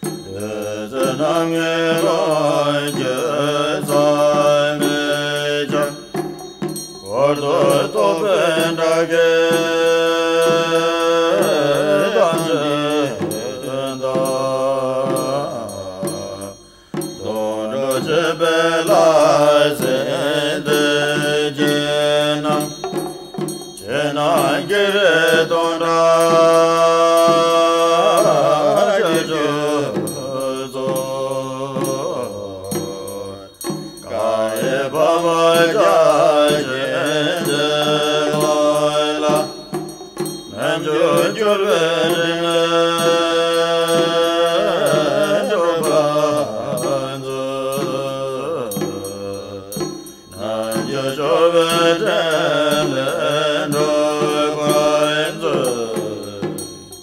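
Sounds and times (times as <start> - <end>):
melodic repeating chant: 0.1 - 56.6.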